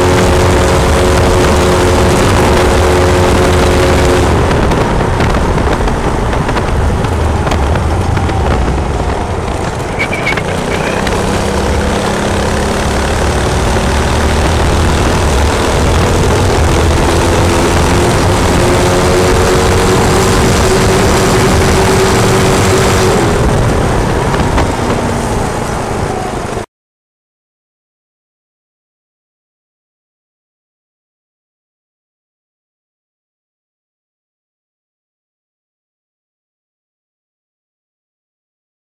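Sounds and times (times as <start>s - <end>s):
go-kart engine running: 0.0s - 26.7s.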